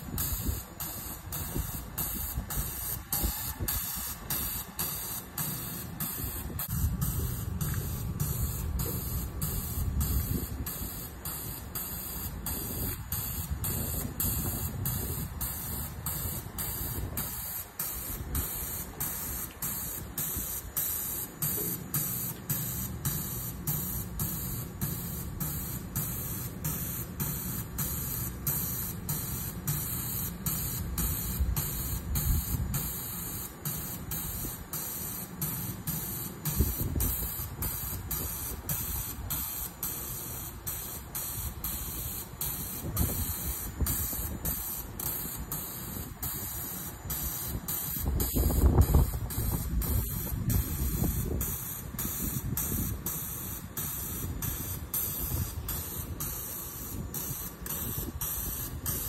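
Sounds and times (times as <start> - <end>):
train equipment hiss: 0.0 - 59.0.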